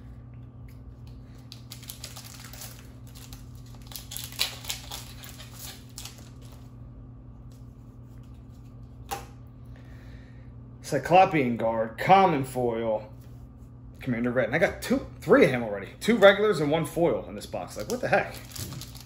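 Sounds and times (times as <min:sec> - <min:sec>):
cards rustling: 0:01.1 - 0:06.7
foil wrapper crinkling: 0:01.3 - 0:06.7, 0:17.6 - 0:19.0.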